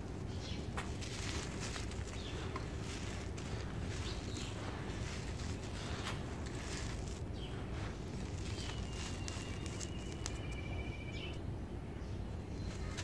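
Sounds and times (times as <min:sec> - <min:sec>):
steady low rumble: 0:00.0 - 0:13.0
grit trickling onto rubble: 0:00.7 - 0:10.6.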